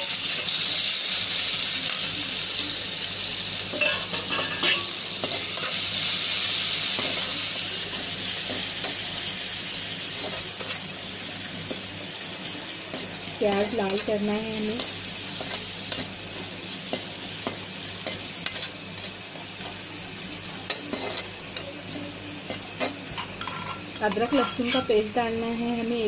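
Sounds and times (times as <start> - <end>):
onions sizzling in hot oil: 0.0 - 26.0
spatula scraping a pan: 20.7 - 25.0.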